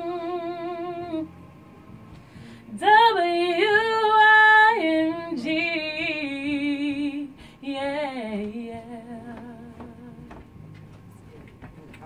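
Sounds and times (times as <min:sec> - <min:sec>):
woman singing unaccompanied: 0:00.0 - 0:01.3, 0:02.7 - 0:10.5.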